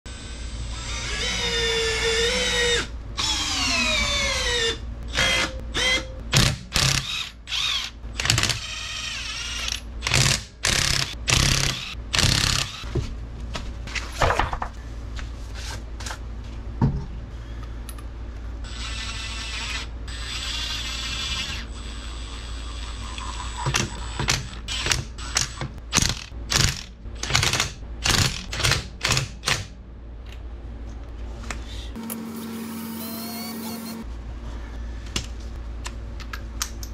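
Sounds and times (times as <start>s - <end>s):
steady low hum: 0.1s - 36.9s
impact wrench bursts: 5.1s - 12.9s.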